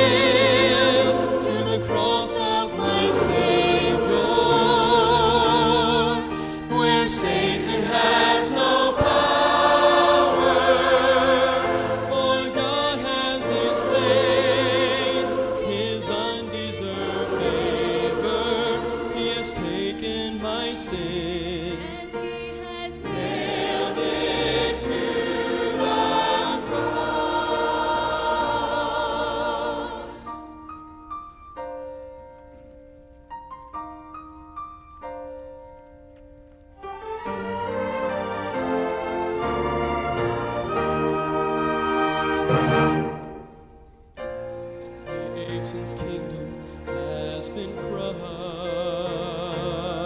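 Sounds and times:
choir singing gospel: 0:00.0 - 0:30.5, 0:37.1 - 0:43.6, 0:44.9 - 0:50.0
instrumental accompaniment: 0:00.0 - 0:50.0.

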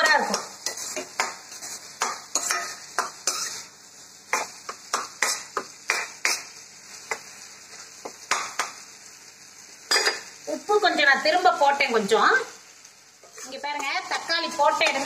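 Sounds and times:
vegetables sizzling in oil: 0:00.0 - 0:15.0
spatula scraping and knocking pan: 0:00.2 - 0:03.7, 0:04.3 - 0:07.3, 0:13.2 - 0:15.0.

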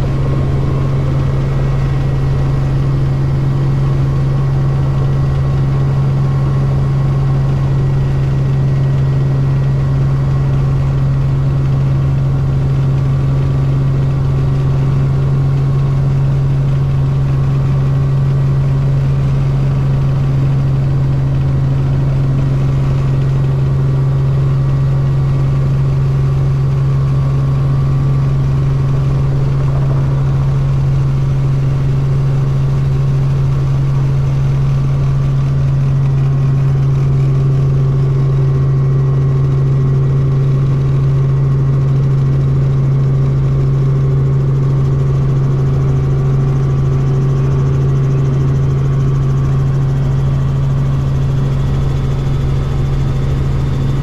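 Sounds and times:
helicopter engine and rotor drone: 0:00.0 - 0:54.0.

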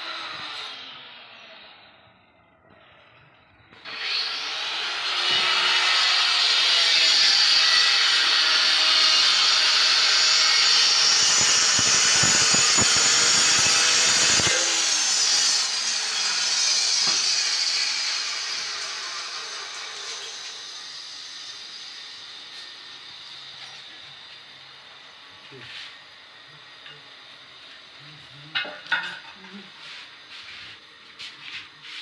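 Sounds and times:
marble cutter grinding stone: 0:03.9 - 0:23.9.

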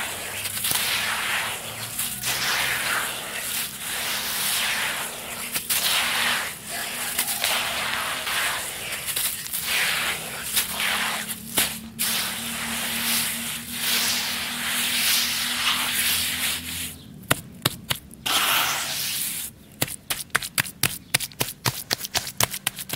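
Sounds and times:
dirt poured into a bowl: 0:00.0 - 0:16.9
crackles of pressed dirt: 0:00.0 - 0:22.9.

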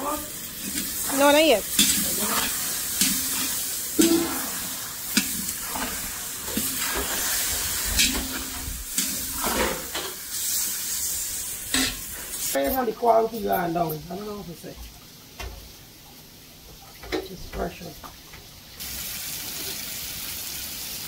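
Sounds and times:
chicken sizzling in pot: 0:00.0 - 0:14.5, 0:17.0 - 0:21.0.

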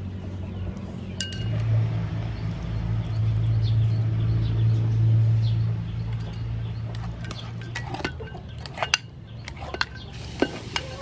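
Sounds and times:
engine hum: 0:00.0 - 0:11.0
metallic clink: 0:01.2 - 0:01.6, 0:06.1 - 0:10.9.

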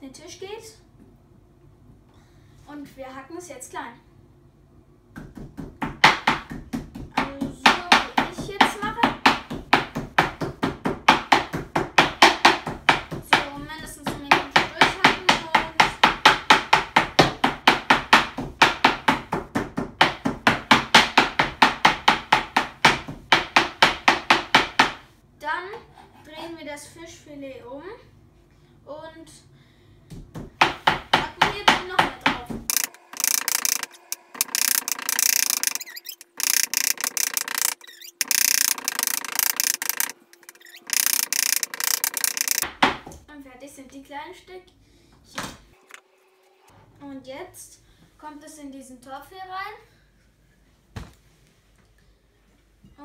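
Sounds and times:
knife chopping on plastic cutting board: 0:05.2 - 0:25.0, 0:30.1 - 0:35.5.

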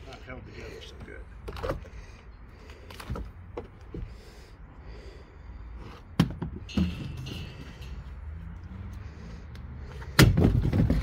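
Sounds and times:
loud wooden thuds: 0:10.1 - 0:11.0.

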